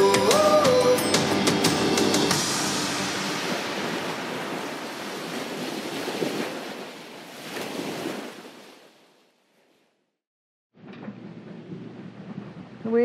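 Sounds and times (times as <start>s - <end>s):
sea water rushing: 0.0s - 9.2s
wind buffeting microphone: 3.1s - 8.2s, 10.8s - 13.0s.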